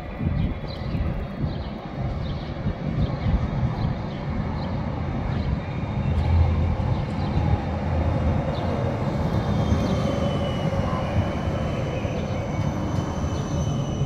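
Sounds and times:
tram wheels rumbling on rails: 0:00.0 - 0:14.0.

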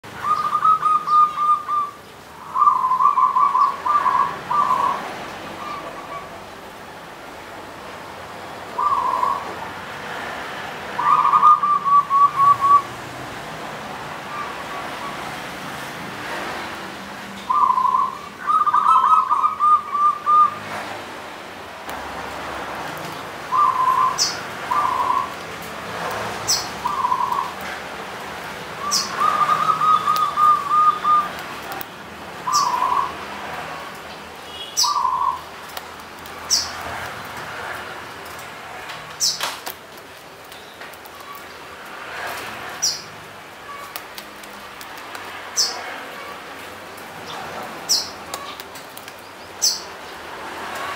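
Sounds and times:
dove cooing trills: 0:00.2 - 0:05.0, 0:08.8 - 0:09.5, 0:11.0 - 0:12.9, 0:17.5 - 0:20.6, 0:23.5 - 0:25.4, 0:26.8 - 0:27.5, 0:28.8 - 0:31.4
high bird chirps: 0:00.2 - 0:05.0, 0:23.5 - 0:25.4, 0:26.5 - 0:27.6, 0:28.8 - 0:31.3, 0:32.4 - 0:33.2, 0:34.5 - 0:35.4.

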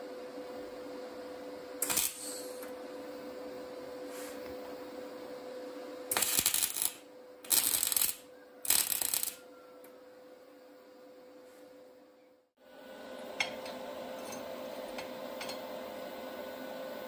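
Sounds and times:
welding arc crackle: 0:01.8 - 0:02.6, 0:06.1 - 0:09.4.

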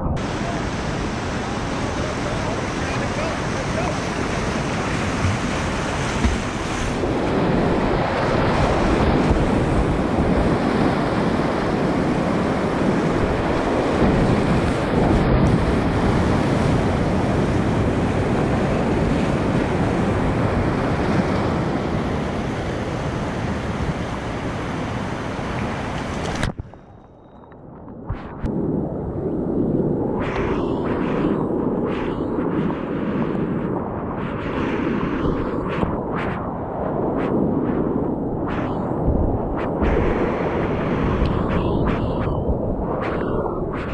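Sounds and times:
whitewater rapids rushing: 0:00.2 - 0:09.9.

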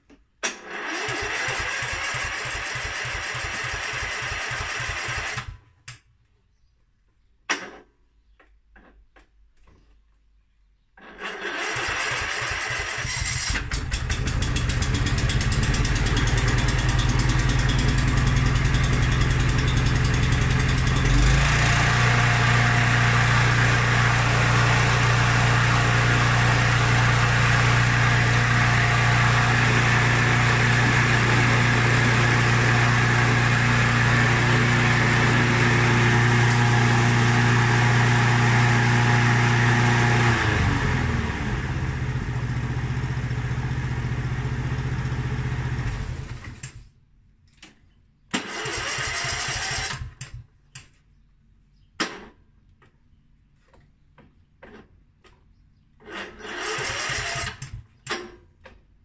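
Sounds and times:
lawn mower engine running: 0:00.4 - 0:05.6, 0:11.0 - 0:46.8, 0:48.4 - 0:50.3, 0:56.0 - 0:58.1.

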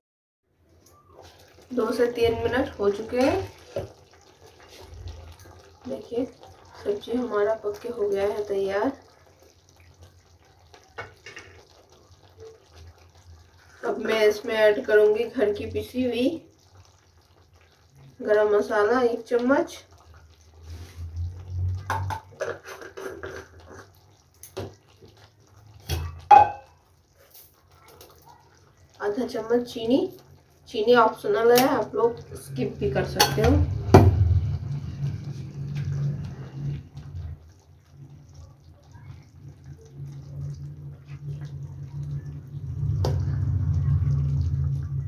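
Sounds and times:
gravy bubbling in a pan: 0:00.5 - 0:45.0
spatula knocking pan: 0:25.9 - 0:26.7
low steady rumble: 0:31.8 - 0:45.0.

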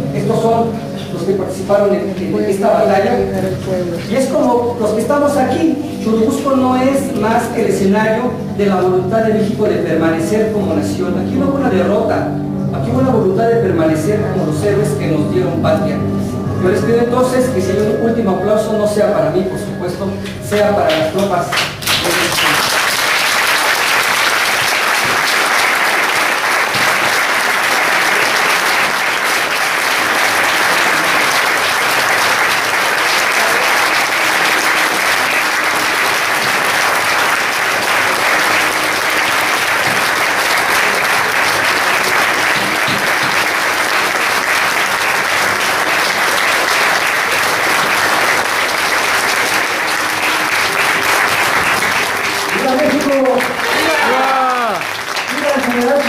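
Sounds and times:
audience applauding: 0:20.9 - 0:56.0.

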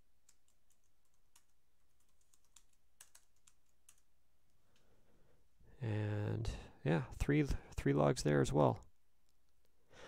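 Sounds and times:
typing on a computer keyboard: 0:00.2 - 0:04.1.

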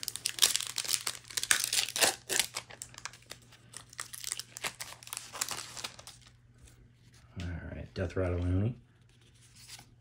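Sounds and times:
foil wrapper crinkling: 0:00.0 - 0:06.4.

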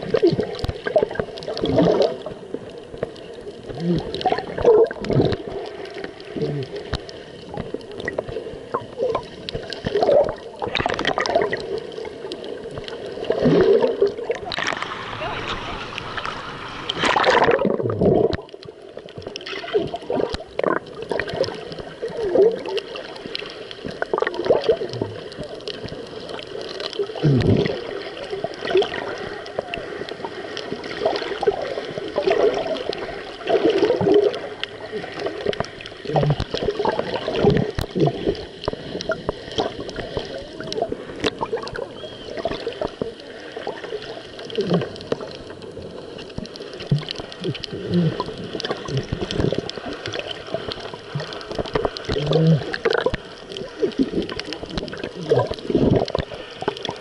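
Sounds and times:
muffled underwater gurgling: 0:00.0 - 0:57.0
water splashing: 0:00.0 - 0:57.0
faint clicks: 0:02.2 - 0:13.3, 0:34.1 - 0:57.0.

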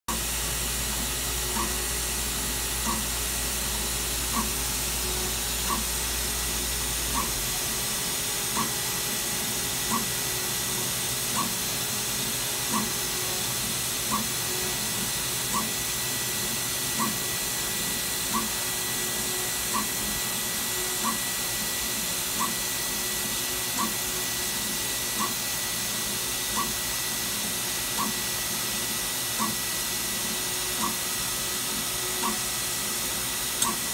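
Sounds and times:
machine hiss and hum: 0:00.1 - 0:33.9
short machine clicks: 0:33.6 - 0:33.9.

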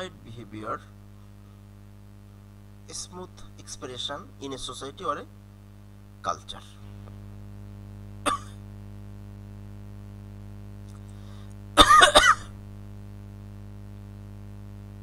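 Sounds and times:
steady electrical hum: 0:00.0 - 0:15.0
man clearing his throat: 0:08.2 - 0:08.6, 0:11.8 - 0:12.6.

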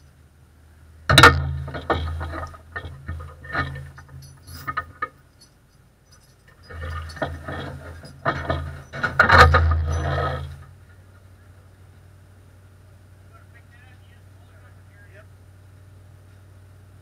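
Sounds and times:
low hum: 0:00.0 - 0:17.0
sharp clicks and rattles: 0:01.1 - 0:11.0.

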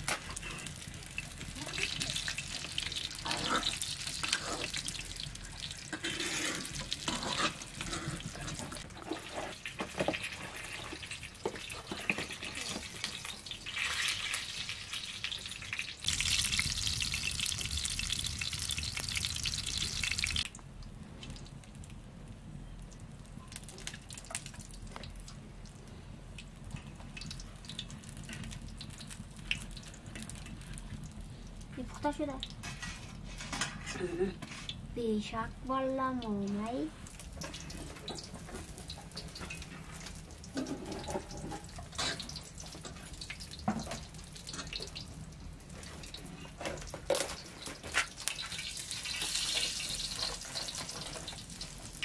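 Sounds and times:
flatbread sizzling in oil: 0:00.0 - 0:20.5, 0:26.4 - 0:31.2, 0:37.0 - 0:52.0
metal spatula scraping a pan: 0:02.5 - 0:05.1, 0:05.9 - 0:12.9.

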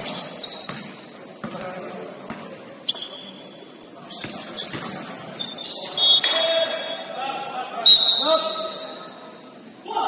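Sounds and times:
sneakers squeaking on floor: 0:00.0 - 0:07.1
basketball bouncing on court: 0:00.6 - 0:02.6, 0:04.2 - 0:05.1.

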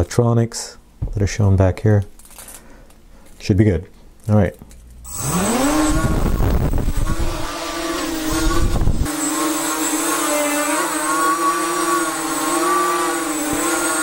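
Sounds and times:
quadcopter motors whining: 0:05.1 - 0:14.0.

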